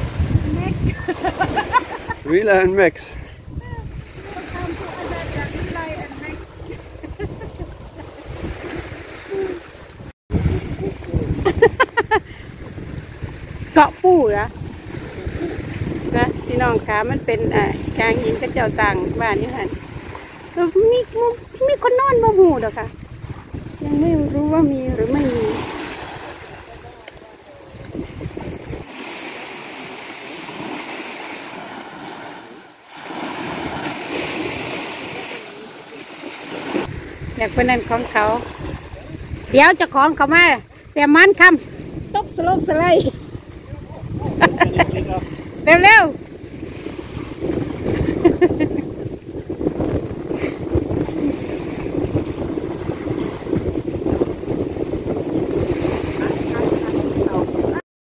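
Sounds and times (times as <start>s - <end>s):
wind buffeting microphone: 0.0s - 29.1s, 36.6s - 57.8s
waves washing onto sand: 0.0s - 57.8s.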